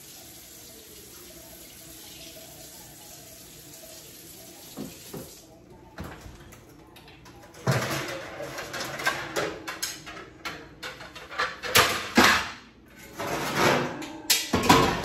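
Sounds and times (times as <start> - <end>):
pans clattering: 7.5 - 15.0
oven racks scraping and rattling: 10.8 - 15.0.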